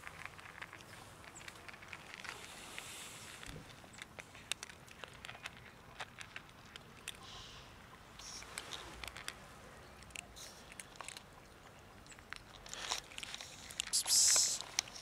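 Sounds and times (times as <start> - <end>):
cats crunching dry food: 0.0 - 15.0
high hiss: 13.9 - 14.6.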